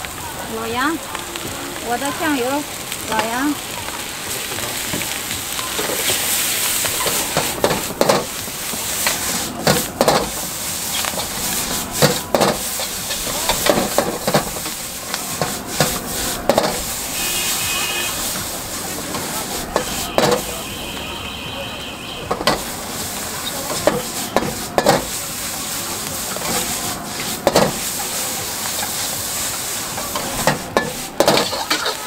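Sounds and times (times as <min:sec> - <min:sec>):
noodles sizzling in a wok: 0:00.0 - 0:32.0
metal ladle scraping a wok: 0:05.8 - 0:20.6, 0:26.2 - 0:32.0.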